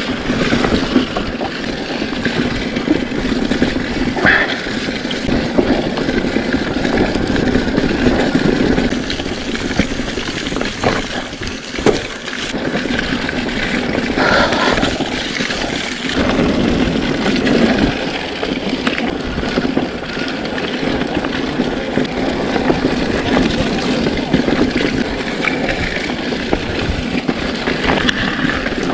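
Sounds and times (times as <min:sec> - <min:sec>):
bike tyres rolling over ground: 0:00.0 - 0:28.9
wind buffeting microphone: 0:00.0 - 0:28.9.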